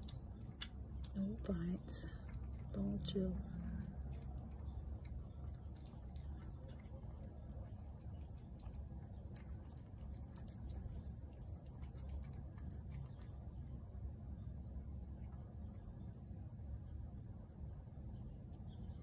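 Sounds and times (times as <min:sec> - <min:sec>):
cat chewing and lapping food: 0:00.0 - 0:14.1.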